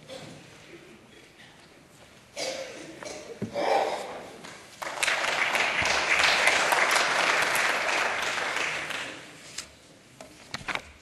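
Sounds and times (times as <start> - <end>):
applause: 4.4 - 9.4.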